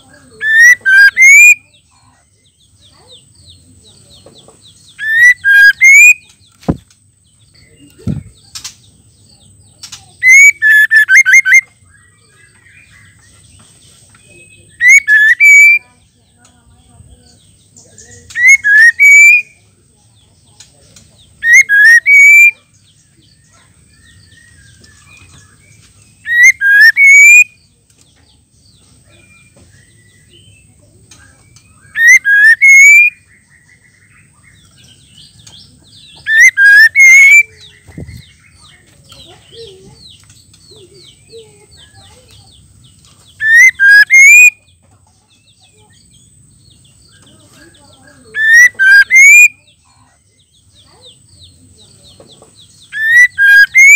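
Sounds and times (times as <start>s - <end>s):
bird whistled calls: 0.3s - 1.8s, 4.9s - 6.4s, 10.2s - 11.7s, 14.7s - 15.9s, 18.3s - 19.6s, 21.4s - 22.6s, 24.0s - 27.6s, 31.5s - 38.7s, 43.4s - 44.7s, 48.2s - 49.8s, 52.8s - 53.9s.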